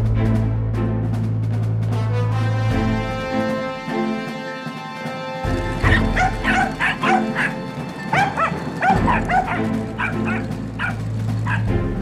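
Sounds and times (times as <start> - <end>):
background music: 0.0 - 12.0
dog barking rapidly: 5.8 - 11.7.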